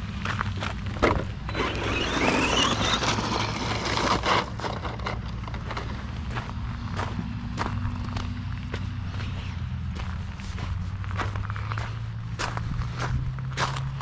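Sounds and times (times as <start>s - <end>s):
rush of tyre noise: 0.0s - 14.0s
footsteps crunching on gravel: 0.1s - 1.0s, 5.6s - 14.0s
electric motor whining: 1.4s - 5.4s.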